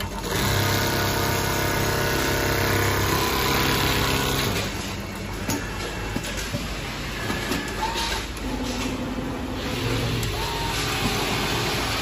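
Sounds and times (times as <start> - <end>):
sewing machine humming: 0.0 - 5.3, 8.4 - 12.0.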